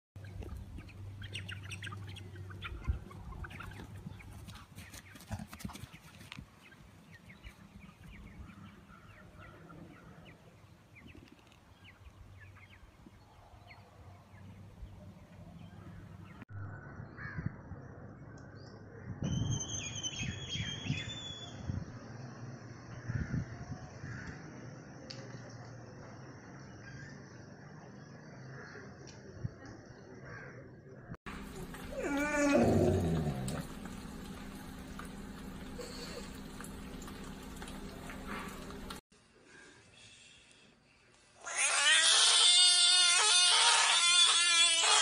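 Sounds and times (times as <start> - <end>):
chickens: 0.2 - 9.6
birds chirping: 0.2 - 16.4, 30.9 - 39.0.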